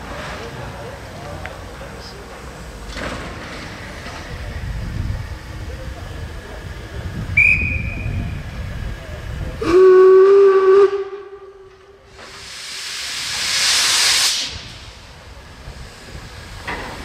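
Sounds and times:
steam locomotive whistle blast: 0:07.4 - 0:08.2, 0:09.6 - 0:11.7
steam venting hiss: 0:12.0 - 0:17.0.

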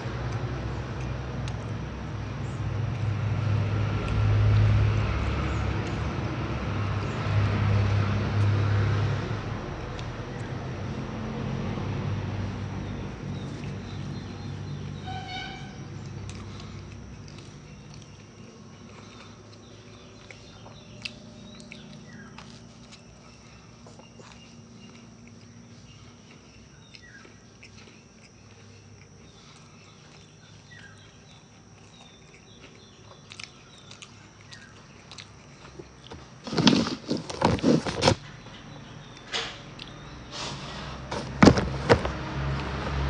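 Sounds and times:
mouth clicks and chewing: 0:00.1 - 0:03.2, 0:15.9 - 0:36.4, 0:39.0 - 0:40.1.

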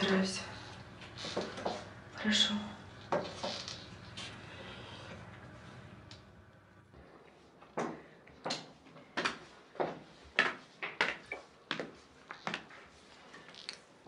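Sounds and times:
footsteps on a hard floor: 0:01.0 - 0:01.9.

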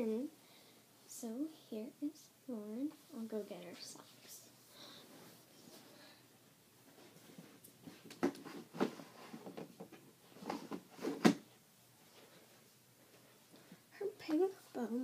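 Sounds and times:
knocks and thumps of movement: 0:06.9 - 0:11.6.

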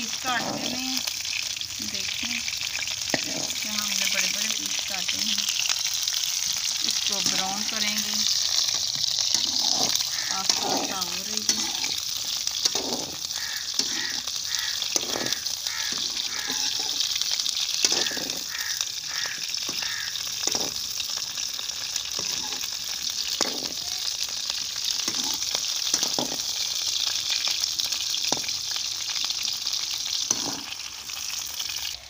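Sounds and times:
food sizzling in hot oil: 0:00.0 - 0:32.0
spoon scraping a wok: 0:00.1 - 0:01.1, 0:03.0 - 0:04.8, 0:06.9 - 0:21.0, 0:22.0 - 0:23.8, 0:24.8 - 0:26.6, 0:30.1 - 0:30.9.

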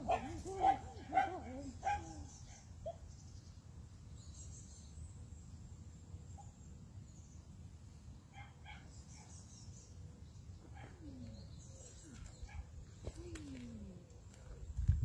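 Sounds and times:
faint bird chirps: 0:08.3 - 0:14.8.

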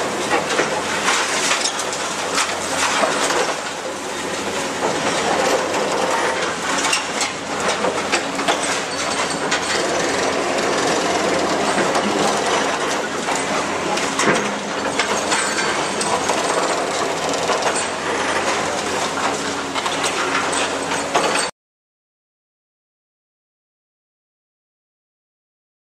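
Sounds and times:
excavator engine running: 0:01.9 - 0:20.1.

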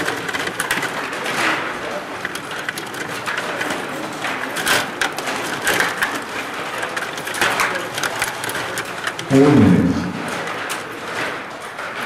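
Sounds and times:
table hockey rods clattering: 0:00.0 - 0:09.3.

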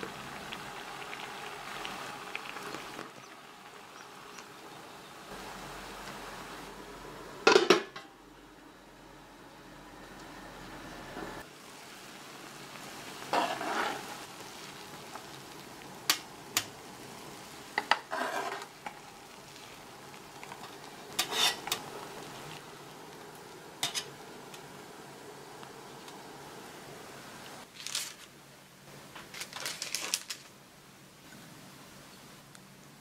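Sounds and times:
water simmering with bubbling hiss: 0:00.0 - 0:07.5, 0:08.2 - 0:27.7
metal turner clinking and scraping: 0:20.6 - 0:21.8.

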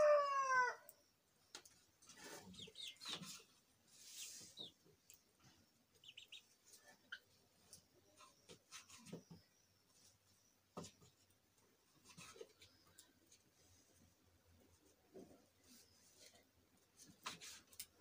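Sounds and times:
chickens chirping: 0:01.5 - 0:11.3.

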